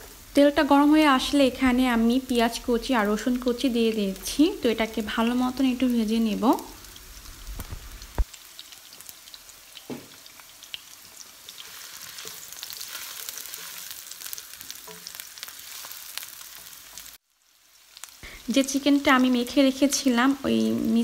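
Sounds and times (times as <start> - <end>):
onion sizzling in hot oil: 0.0 - 21.0
spatula stirring in pan: 8.2 - 17.1.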